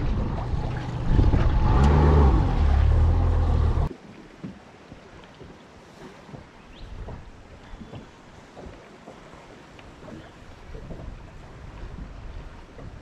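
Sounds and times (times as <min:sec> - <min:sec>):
wind rushing on microphone: 0:00.0 - 0:03.0, 0:10.5 - 0:13.0
boat motor: 0:00.0 - 0:03.9
river ambience: 0:00.0 - 0:13.0.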